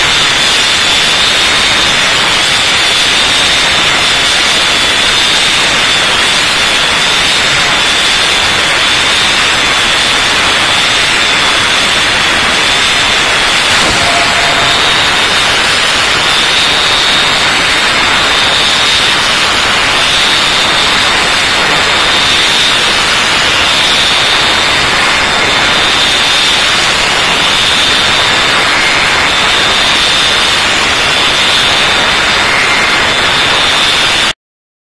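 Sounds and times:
orbital sander hissing on metal: 0.0 - 34.0
high whine: 0.0 - 34.4.

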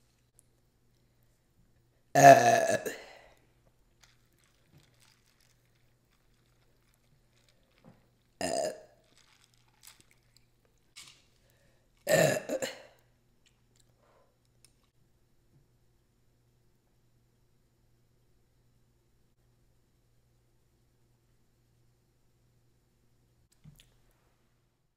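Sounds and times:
woman burping: 2.2 - 3.3, 8.4 - 9.0, 12.0 - 13.0.

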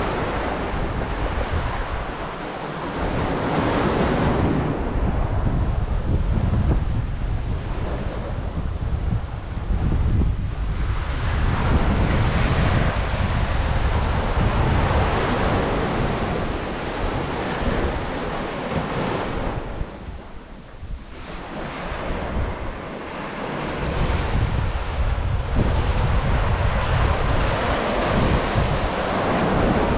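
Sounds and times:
surf washing onto beach: 0.0 - 29.9
wind buffeting microphone: 0.0 - 29.9.

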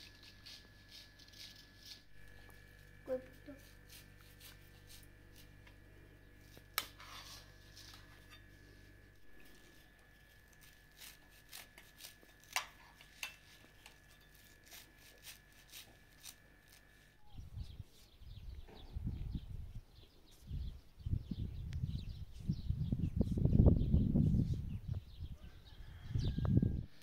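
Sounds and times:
scissors snipping herbs: 0.0 - 5.8, 6.4 - 8.5, 9.4 - 17.1
faint steady hum: 0.0 - 19.9
wind rumbling on microphone: 17.3 - 27.0.

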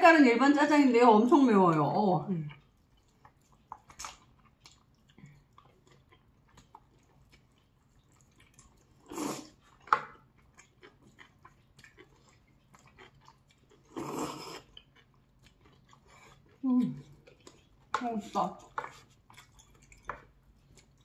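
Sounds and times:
wet chewing and lip smacks: 2.3 - 21.0
slurping noodles: 9.0 - 9.7, 13.8 - 14.8.

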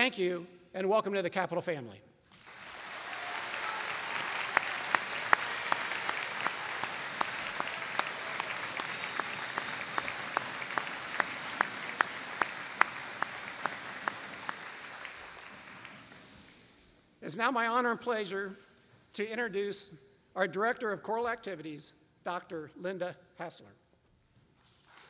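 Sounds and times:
nearby person clapping: 2.3 - 16.6
large audience applauding: 2.3 - 16.7.

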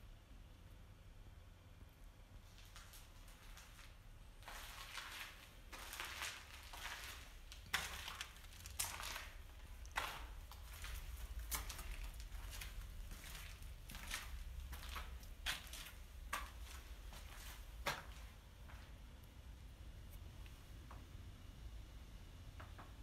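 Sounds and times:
footsteps crunching dry leaves: 4.4 - 17.8.

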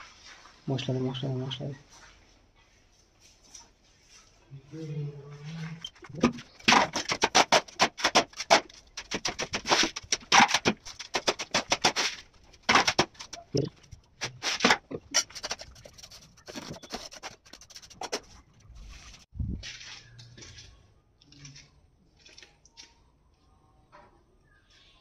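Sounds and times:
spade scraping mortar: 5.7 - 18.3.

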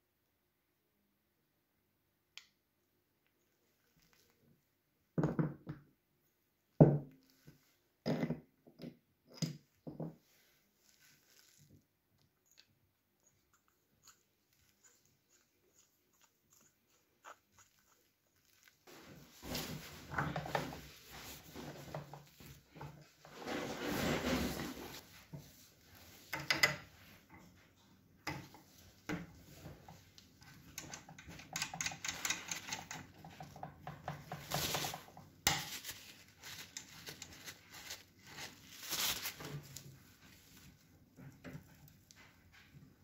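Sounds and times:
rubbing and scraping of parts: 18.9 - 27.6, 28.4 - 40.7.

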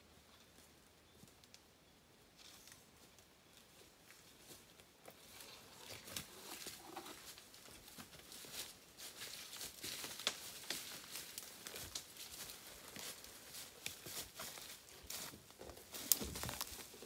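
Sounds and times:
footsteps crunching through dry leaves: 5.2 - 17.0.

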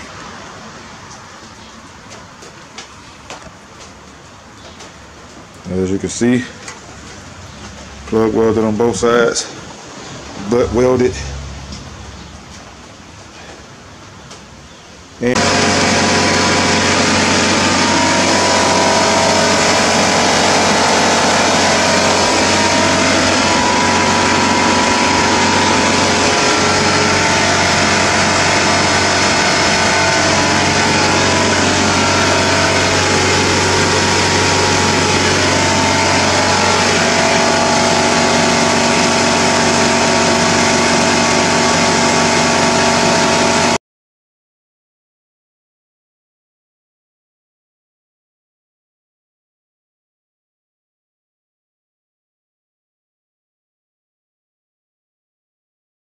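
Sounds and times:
motorcycle engine running: 15.4 - 43.8.

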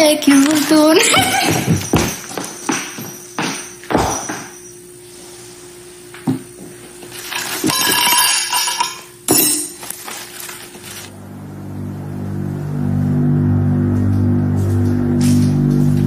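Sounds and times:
dishes clinking: 7.2 - 9.8
rustling: 9.8 - 11.1
low sustained music notes: 11.1 - 16.0.

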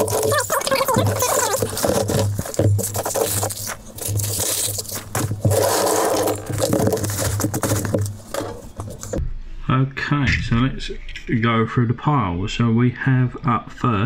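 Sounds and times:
hands rustling packing material: 0.0 - 9.2.

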